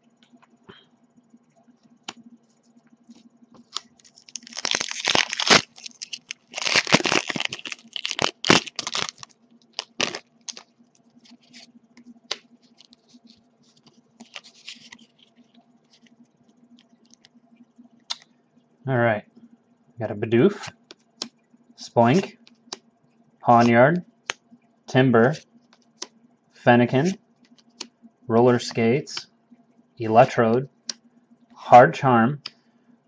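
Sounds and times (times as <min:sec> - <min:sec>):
foil pack ripping and crinkling: 0:03.7 - 0:10.7.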